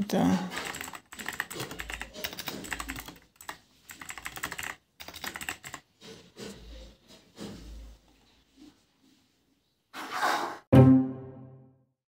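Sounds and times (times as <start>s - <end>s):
computer keyboard typing: 0.5s - 5.9s.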